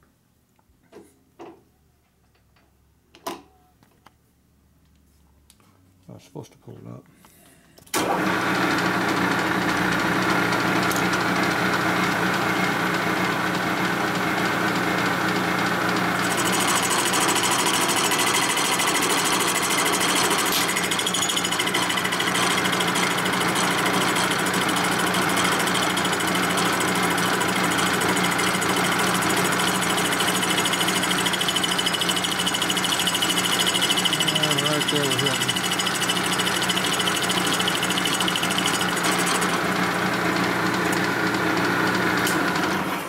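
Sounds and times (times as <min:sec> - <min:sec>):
milling machine cutting metal: 0:16.2 - 0:40.0.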